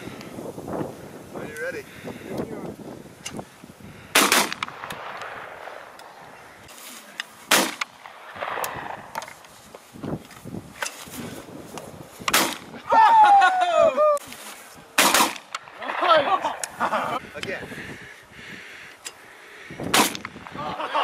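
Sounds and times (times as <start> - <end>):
shotgun shots: 4.1 - 5.9, 7.5 - 9.2, 12.3 - 12.7, 15.0 - 15.7, 19.9 - 20.5.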